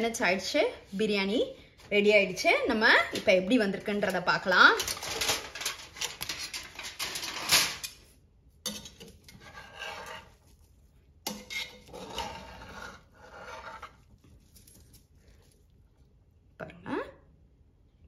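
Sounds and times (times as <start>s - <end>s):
metal ladle scraping in pot: 8.6s - 14.4s.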